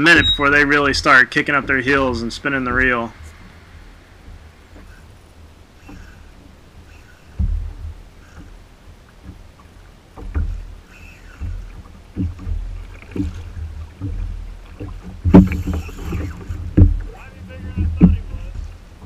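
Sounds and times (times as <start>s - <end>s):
water rushing burst: 0.0s - 19.0s
wind and water against hull: 0.0s - 19.0s
knocks on kayak: 11.4s - 18.8s.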